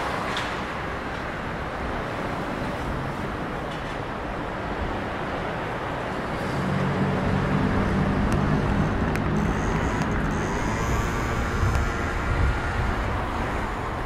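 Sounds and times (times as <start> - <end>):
cars driving past: 4.9 - 14.0
vehicle engine low hum: 6.4 - 14.0.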